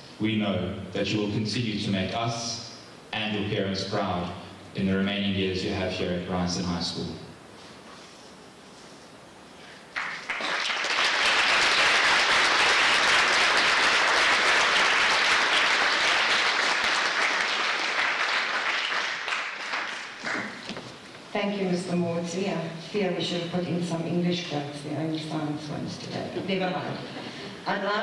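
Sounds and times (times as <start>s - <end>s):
audience applauding: 9.9s - 20.7s.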